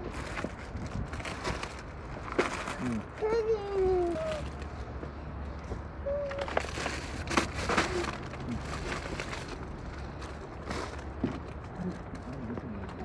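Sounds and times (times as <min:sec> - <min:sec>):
plastic bags rustling: 0:00.0 - 0:04.9, 0:06.1 - 0:13.0
child's vocal sound: 0:03.2 - 0:04.5, 0:06.0 - 0:06.7.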